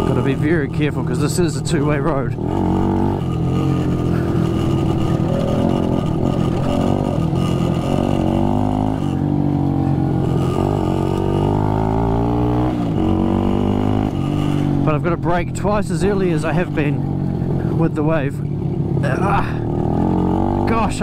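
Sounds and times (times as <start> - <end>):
two-stroke motorcycle engine: 0.0 - 21.0.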